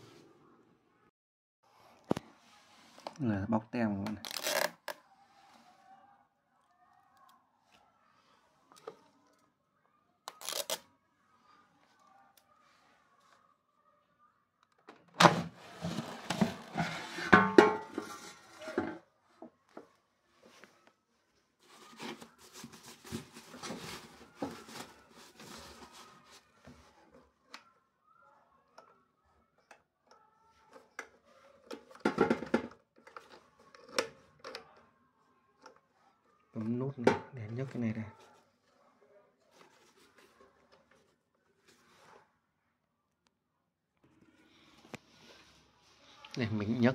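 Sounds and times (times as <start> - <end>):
plastic scraping and rattling: 14.8 - 19.0, 30.7 - 34.8.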